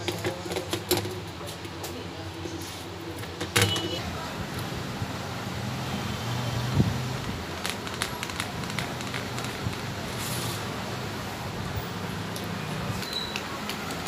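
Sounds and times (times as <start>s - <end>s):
hand patting crumbly mixture: 7.3s - 10.1s.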